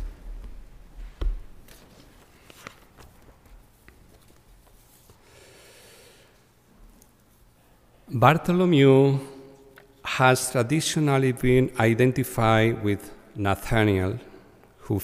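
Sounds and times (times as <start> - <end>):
paper rustling: 1.7 - 5.2.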